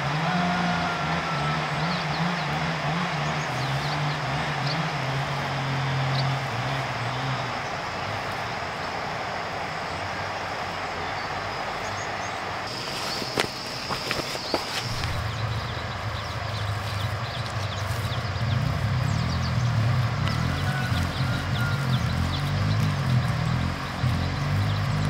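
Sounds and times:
distant engine humming: 0.0 - 25.0
steady outdoor hiss: 0.0 - 25.0.

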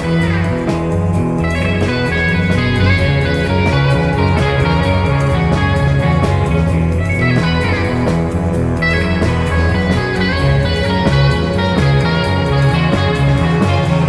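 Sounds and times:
bass notes: 0.0 - 14.0
electric guitar playing: 0.0 - 14.0
steady drum beat: 0.0 - 14.0.

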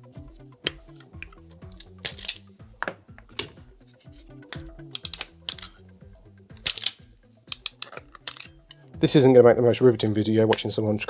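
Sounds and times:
background music: 0.0 - 11.0
pliers clicking and snipping: 0.6 - 2.4, 4.5 - 5.8, 6.5 - 8.8.

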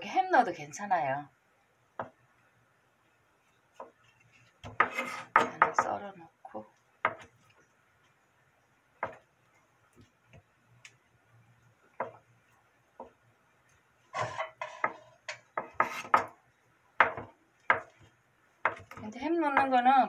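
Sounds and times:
knife scraping: 4.0 - 5.4, 14.1 - 16.2
knife knocking on wooden board: 14.2 - 16.4, 17.0 - 17.9.

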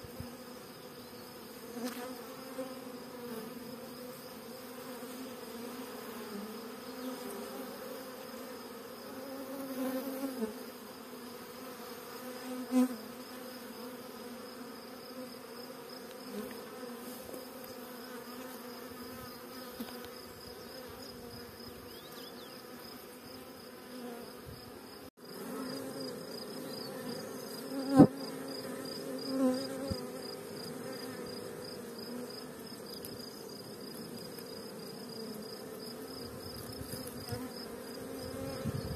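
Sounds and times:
bees buzzing: 0.0 - 38.9.

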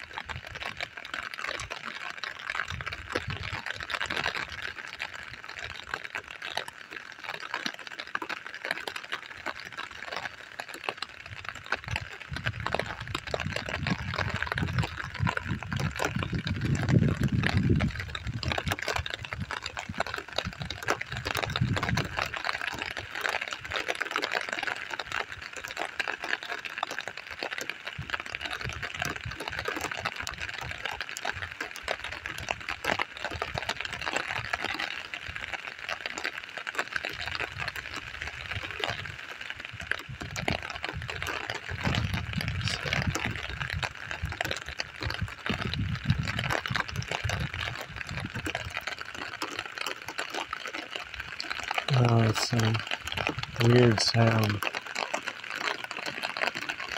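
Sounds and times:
rain ticking: 0.0 - 56.9.

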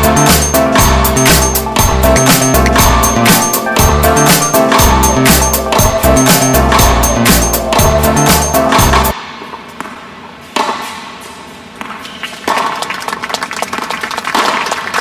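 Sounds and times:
music with a beat: 0.0 - 9.2
crowd clapping: 12.2 - 15.0.

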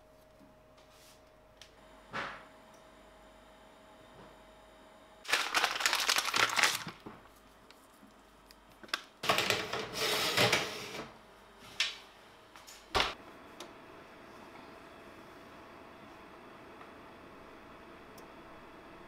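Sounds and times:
spice grinder crackling: 5.3 - 7.0.

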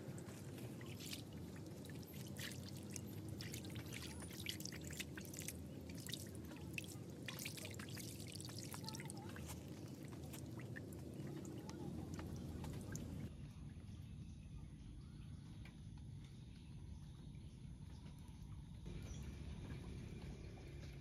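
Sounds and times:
water dripping and splashing: 0.0 - 13.3
water scooped by hand: 0.2 - 11.0.

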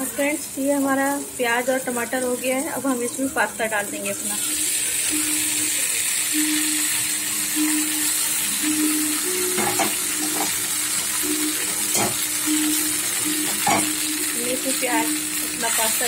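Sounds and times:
food sizzling in a frying pan: 0.0 - 16.0
utensils knocking against pan: 9.4 - 14.3.

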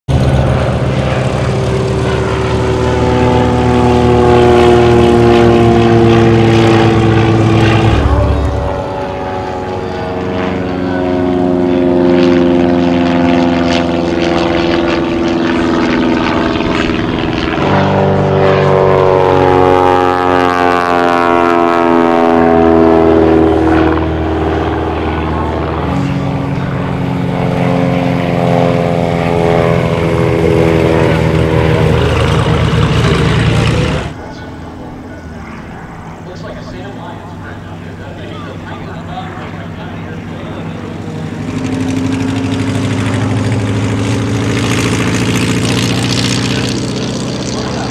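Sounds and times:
propeller planes flying overhead: 0.1 - 47.9.

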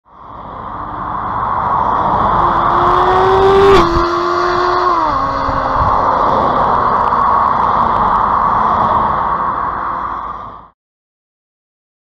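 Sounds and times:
motorcycle engine revving: 0.6 - 8.3.

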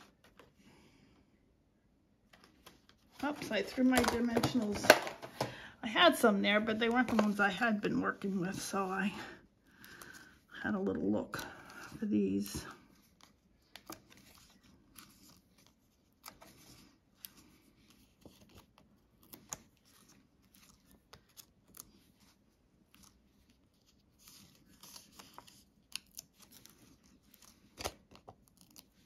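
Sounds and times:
adhesive pads peeled from backing: 12.9 - 29.0.

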